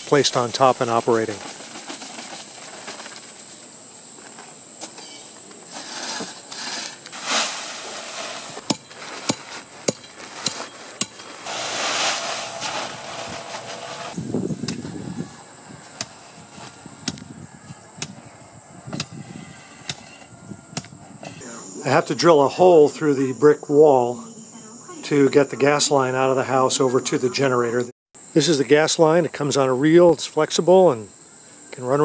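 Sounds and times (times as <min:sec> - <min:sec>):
gravel pouring from bags: 0:00.0 - 0:03.3, 0:05.7 - 0:14.2
dull thuds of tamping gravel: 0:05.6 - 0:15.0.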